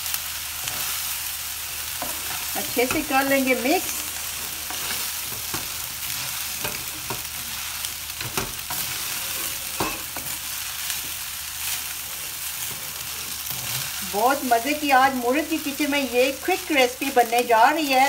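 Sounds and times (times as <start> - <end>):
rice sizzling in a wok: 0.0 - 18.0
spatula scraping and tapping pan: 2.0 - 3.2, 4.6 - 7.4, 8.2 - 10.4.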